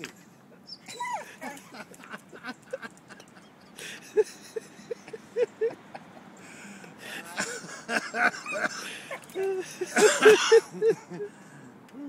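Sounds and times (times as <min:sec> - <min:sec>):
dog whining yelps: 0:00.7 - 0:01.7, 0:08.4 - 0:09.6.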